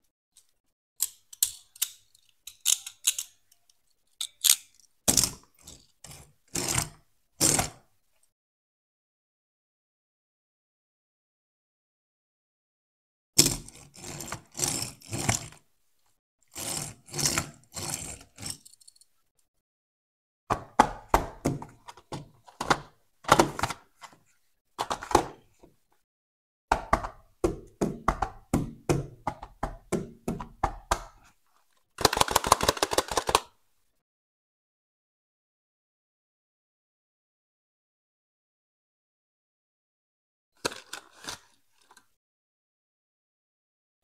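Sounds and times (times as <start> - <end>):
toy and cardboard handling knocks: 20.5 - 23.8, 26.7 - 31.3
quick run of clicks: 32.0 - 33.5.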